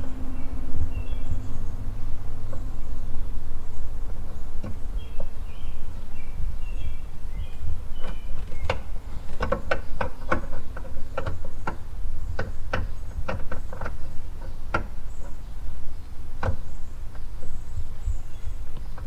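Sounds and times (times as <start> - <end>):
steady low rumble: 0.0 - 19.0
plastic clicks and rattles: 8.0 - 15.4.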